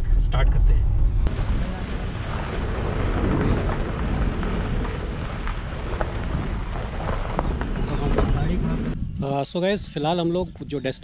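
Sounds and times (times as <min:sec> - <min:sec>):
low car rumble: 0:00.0 - 0:09.2
tyres crunching on gravel: 0:01.3 - 0:09.0.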